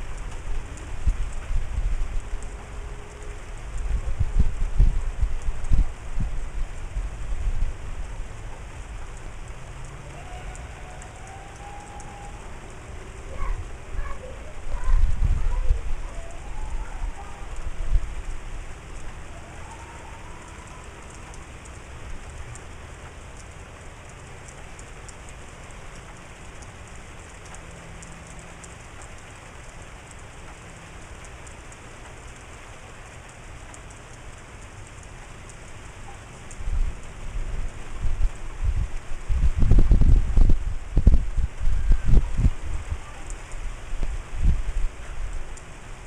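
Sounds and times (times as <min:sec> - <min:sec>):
wind buffeting microphone: 0:00.0 - 0:24.1, 0:36.4 - 0:46.0
steady rain falling: 0:00.0 - 0:46.0.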